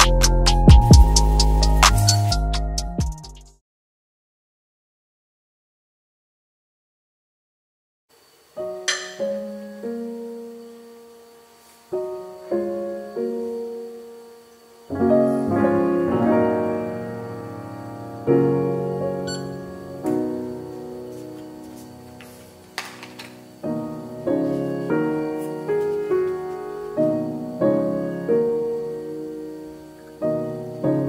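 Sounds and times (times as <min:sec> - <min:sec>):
soft slow piano music: 0:08.6 - 0:31.0.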